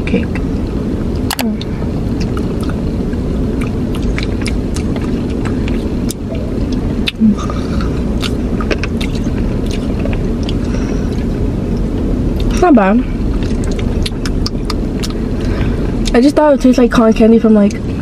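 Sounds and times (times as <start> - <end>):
car engine idling: 0.0 - 18.0
person humming: 7.2 - 8.0.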